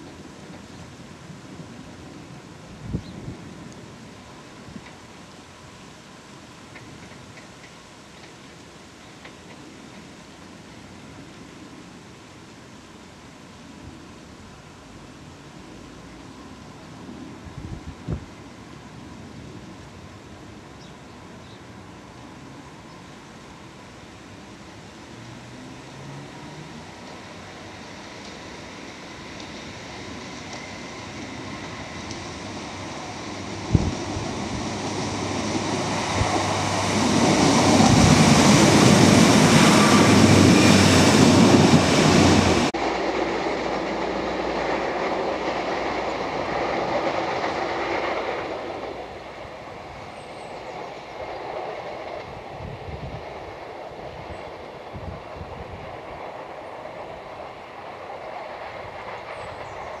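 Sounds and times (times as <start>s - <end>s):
diesel train passing: 3.4s - 60.0s.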